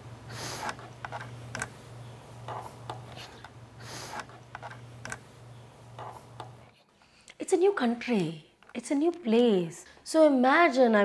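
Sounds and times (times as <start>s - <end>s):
low electrical hum: 0.0s - 11.0s
sniffs: 0.3s - 0.8s, 3.1s - 4.4s.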